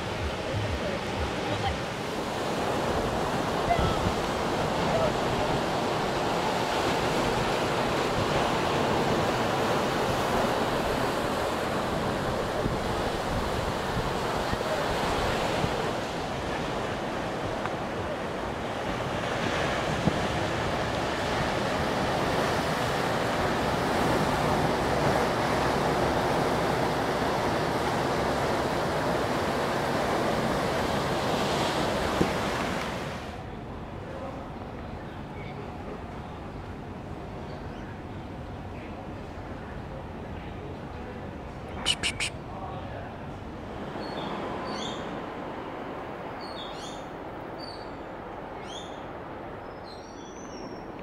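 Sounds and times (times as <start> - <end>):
ocean surf breaking on rocks: 0.0 - 33.5.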